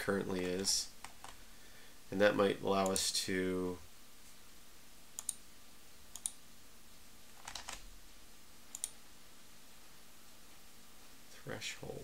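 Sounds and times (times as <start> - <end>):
faint computer mouse clicking: 5.2 - 5.4, 6.1 - 6.4, 8.7 - 9.0.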